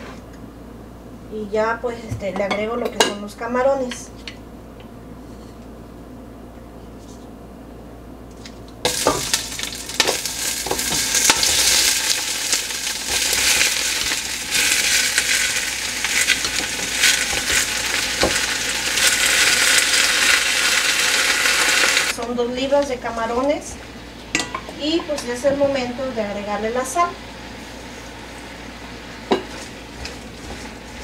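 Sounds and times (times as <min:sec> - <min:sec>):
shrimp sizzling in hot oil: 0:08.9 - 0:22.2.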